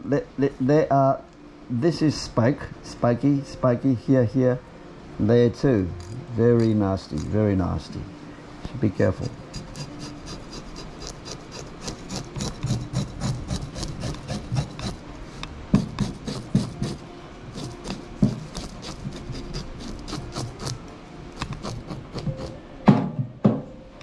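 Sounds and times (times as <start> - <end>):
knife scraping fish scales: 5.9 - 7.4, 9.1 - 20.8, 21.4 - 22.6.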